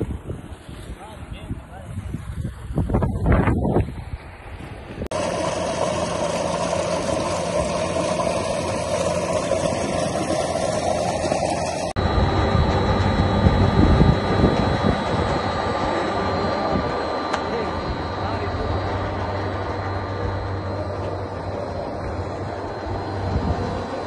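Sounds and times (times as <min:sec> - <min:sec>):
pump humming: 0:04.8 - 0:24.0
water gushing into a tank: 0:05.1 - 0:12.0.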